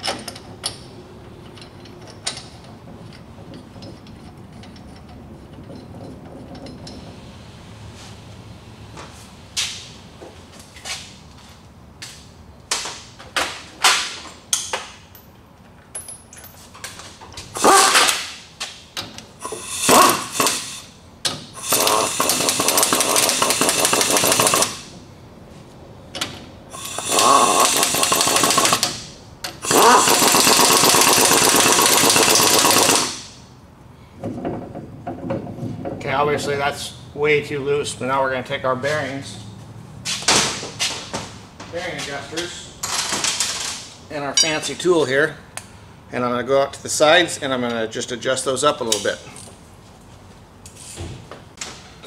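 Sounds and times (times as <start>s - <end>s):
metal clinks and knocks: 0.0s - 7.2s, 14.5s - 17.4s
impact wrench hammering: 17.6s - 18.3s, 19.4s - 24.9s, 26.8s - 33.4s.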